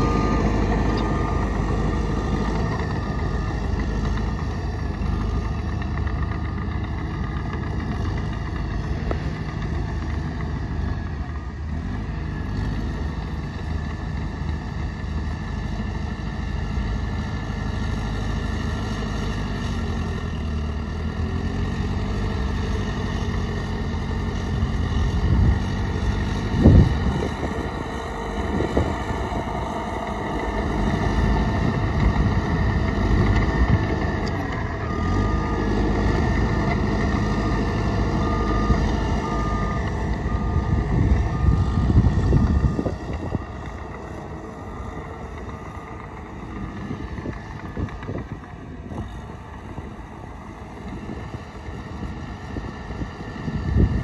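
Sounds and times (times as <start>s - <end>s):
reversing alarm beeping: 0.0s - 8.0s, 21.2s - 48.2s
diesel machinery engine rumble: 0.0s - 54.0s.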